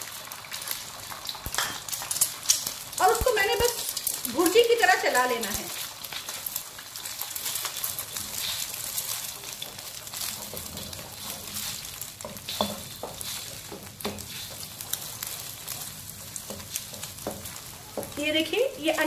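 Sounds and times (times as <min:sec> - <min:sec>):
eggs sizzling in hot oil: 0:00.0 - 0:19.0
spatula scraping a pan: 0:05.8 - 0:18.4.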